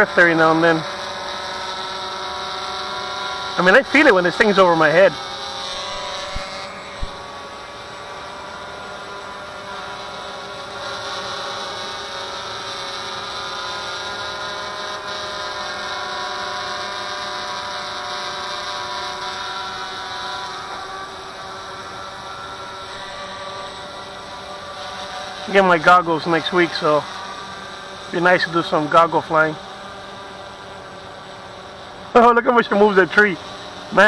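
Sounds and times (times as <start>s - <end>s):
drone propellers whining: 0.0s - 34.0s.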